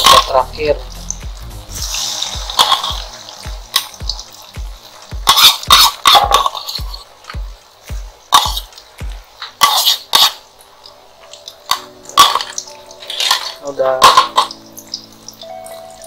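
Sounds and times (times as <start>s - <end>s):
faint background music: 0.0s - 16.0s
metal spoon scraping ceramic bowl: 9.6s - 10.4s.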